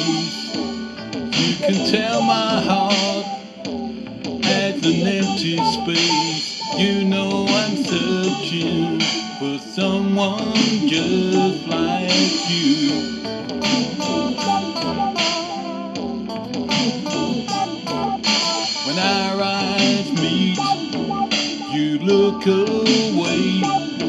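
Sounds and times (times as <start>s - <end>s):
bass guitar: 0.0s - 24.0s
electric guitar: 0.0s - 24.0s
steady drum beat: 0.0s - 24.0s.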